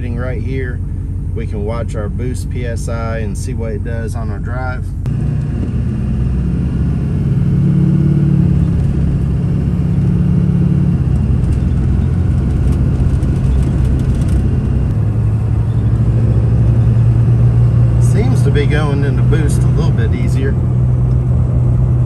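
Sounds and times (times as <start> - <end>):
diesel truck engine accelerating: 0.0 - 22.0.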